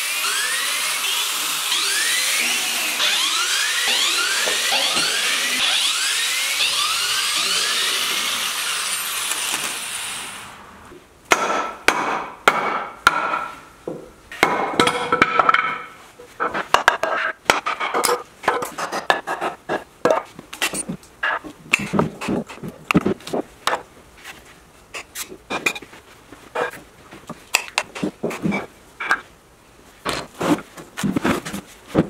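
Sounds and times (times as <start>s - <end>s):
electric drill whining: 0.0s - 10.7s
hammer knocking on wooden boards: 11.3s - 15.8s.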